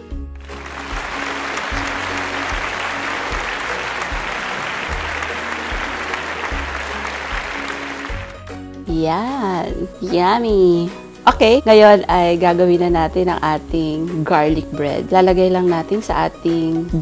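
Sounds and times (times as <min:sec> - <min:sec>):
applause: 0:00.4 - 0:08.5
music with repeating bass line: 0:00.4 - 0:08.5.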